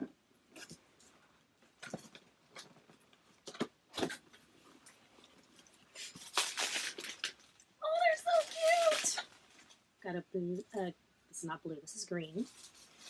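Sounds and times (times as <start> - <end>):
cardboard crackling and rustling: 1.7 - 9.8.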